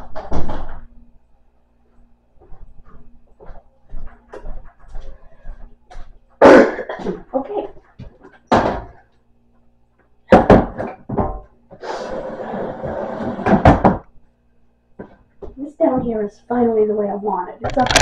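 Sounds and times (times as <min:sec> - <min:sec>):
kitchen items knocking and thudding: 0:06.8 - 0:09.0, 0:10.3 - 0:11.5, 0:13.3 - 0:14.1, 0:17.6 - 0:18.0.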